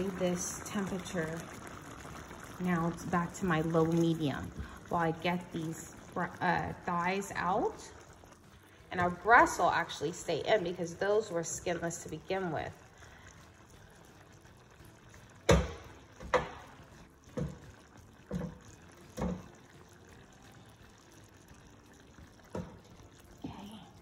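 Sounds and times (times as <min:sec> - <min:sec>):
wet knocks on baking sheet: 0:15.5 - 0:16.6.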